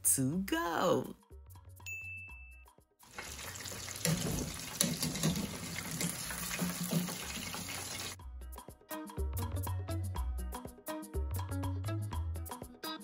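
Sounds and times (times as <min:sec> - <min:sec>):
hot oil sizzling and crackling: 0:03.0 - 0:08.2.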